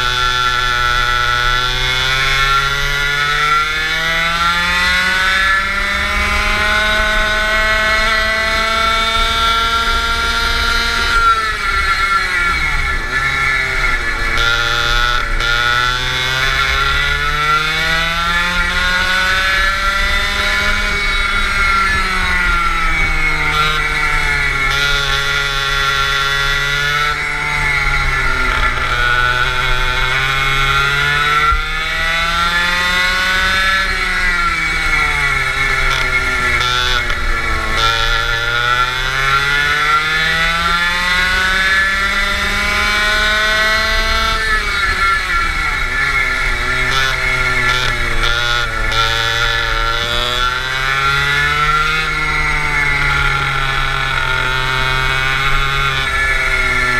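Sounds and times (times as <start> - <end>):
go-kart engine racing: 0.0 - 56.9.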